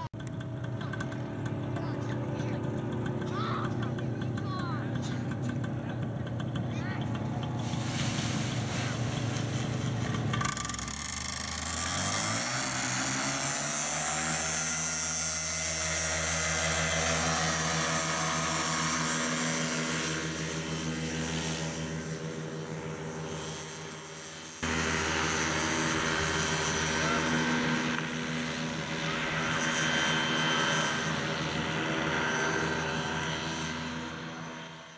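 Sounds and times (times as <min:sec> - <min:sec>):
paramotor engine and propeller: 0:00.0 - 0:34.9.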